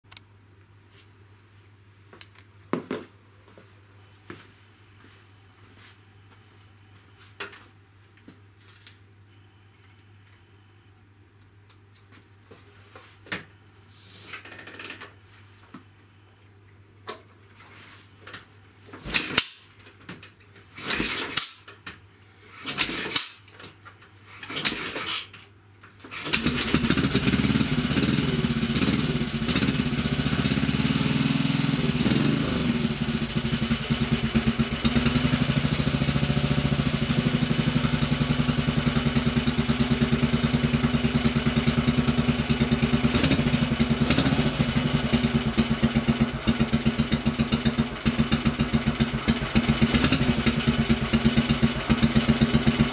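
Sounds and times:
motorcycle kick-start strokes: 0:19.0 - 0:19.6, 0:20.8 - 0:21.7, 0:22.6 - 0:23.4, 0:24.4 - 0:25.4, 0:26.1 - 0:52.9
motorcycle engine idling: 0:26.4 - 0:52.9.

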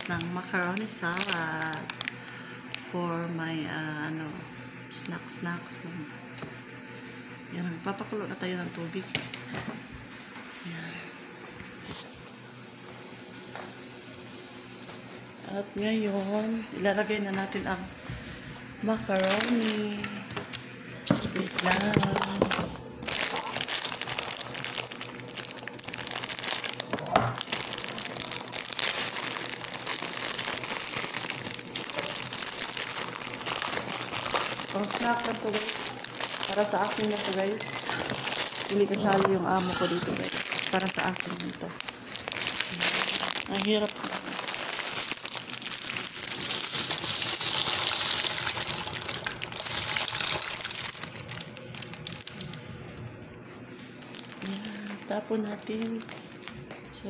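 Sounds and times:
plastic bag crinkling: 0:00.0 - 0:02.9, 0:18.9 - 0:20.5, 0:21.1 - 0:53.1, 0:53.8 - 0:57.0
pasta pouring into water: 0:42.2 - 0:52.4.

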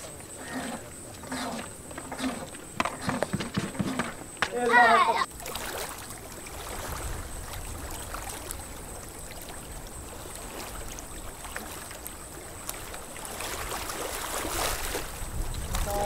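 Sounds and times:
paddle splashing water: 0:00.0 - 0:16.0.

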